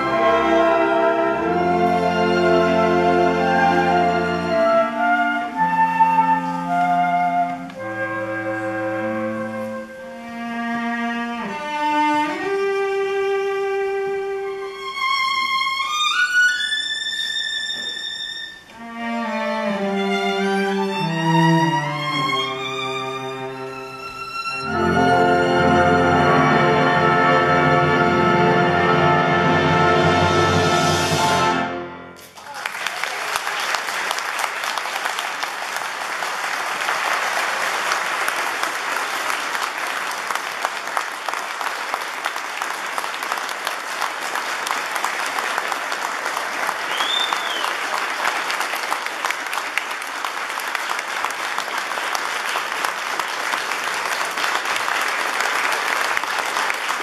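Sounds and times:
audience applauding: 0:32.2 - 0:57.0
whistle: 0:46.9 - 0:47.8.

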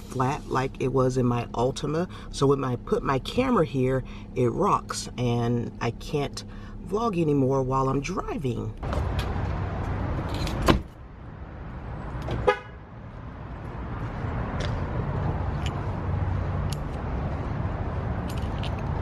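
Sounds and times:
outdoor rumble: 0:00.0 - 0:19.0
footsteps on asphalt: 0:08.8 - 0:10.0, 0:12.1 - 0:19.0
car door shutting: 0:10.3 - 0:11.0
car horn toot: 0:12.4 - 0:12.8.

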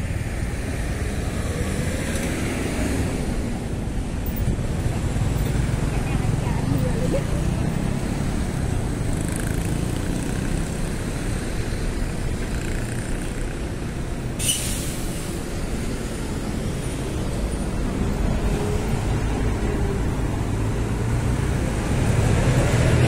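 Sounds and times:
road traffic rumble: 0:00.0 - 0:23.0
short sharp hiss: 0:14.4 - 0:15.3.

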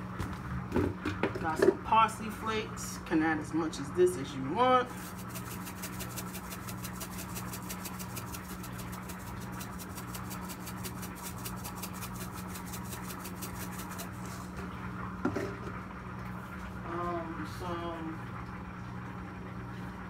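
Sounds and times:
steady low hum: 0:01.8 - 0:20.0
spice shaker shaking: 0:05.0 - 0:14.3.

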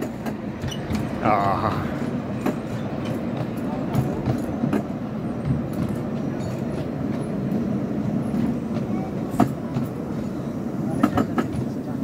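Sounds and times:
miniature train rumbling on track: 0:00.0 - 0:12.0.

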